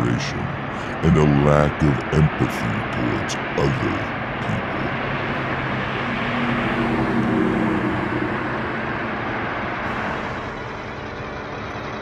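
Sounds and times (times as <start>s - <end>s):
steady traffic noise: 0.0s - 12.0s
car driving past: 4.9s - 10.6s.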